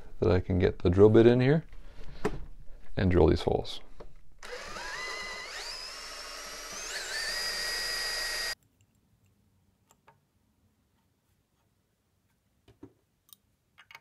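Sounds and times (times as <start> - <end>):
drill whining into wood: 4.4 - 8.6.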